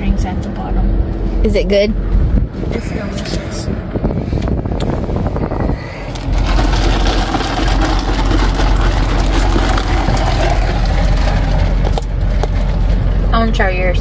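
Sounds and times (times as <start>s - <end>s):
moving vehicle rumble and hiss: 0.0s - 6.4s, 10.9s - 14.0s.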